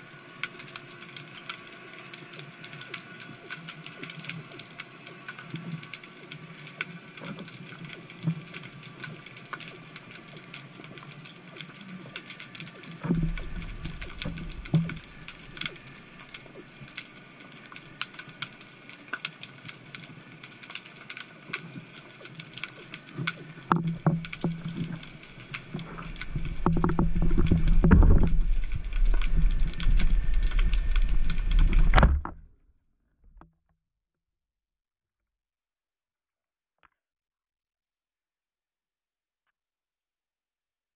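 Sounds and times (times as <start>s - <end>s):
underwater crackle of clicks: 0.2s - 32.4s
low rumble: 13.1s - 16.0s, 25.6s - 32.5s.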